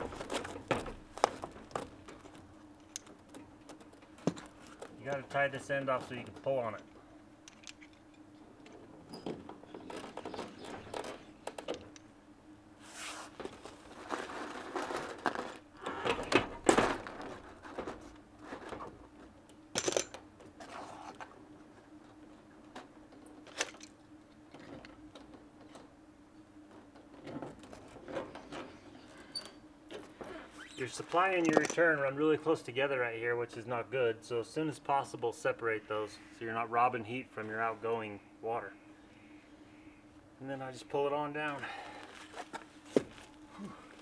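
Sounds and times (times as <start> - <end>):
faint steady hum: 0.0 - 44.0
plastic tubing rustling and scraping: 12.8 - 19.3, 41.8 - 44.0.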